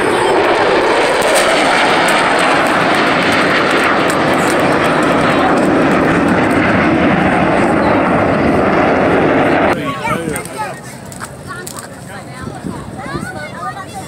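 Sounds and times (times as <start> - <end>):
fighter jet flying past: 0.0 - 11.2.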